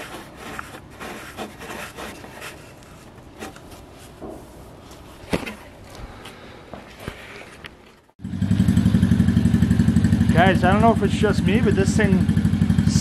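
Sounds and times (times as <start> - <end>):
rubbing on plastic cap: 0.0 - 4.2.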